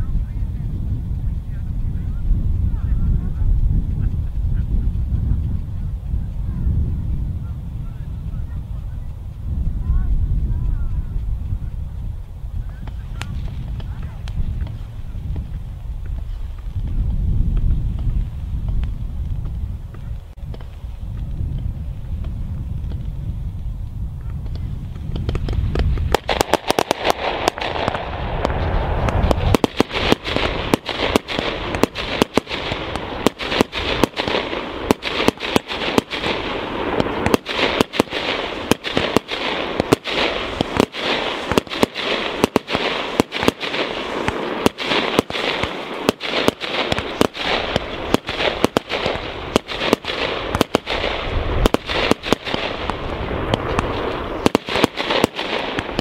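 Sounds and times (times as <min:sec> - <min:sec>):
firework fountains hissing and crackling: 0:00.0 - 0:56.0
sharp firework bangs: 0:24.4 - 0:56.0.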